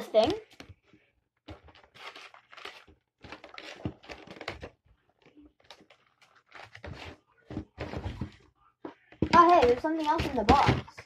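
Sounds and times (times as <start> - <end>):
packaging rustling and crinkling: 1.4 - 8.4.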